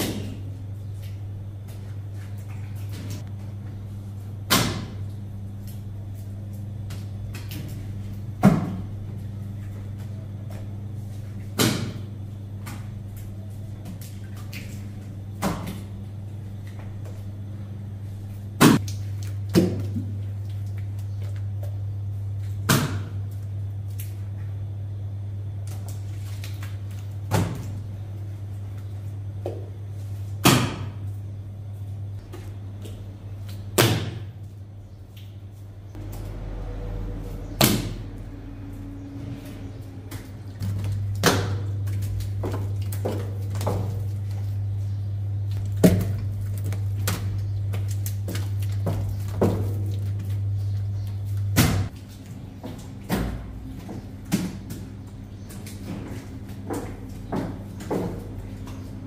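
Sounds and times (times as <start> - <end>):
steady low hum: 0.0 - 59.0
sharp knocks and slaps: 4.5 - 5.0, 11.5 - 12.0, 33.8 - 34.3.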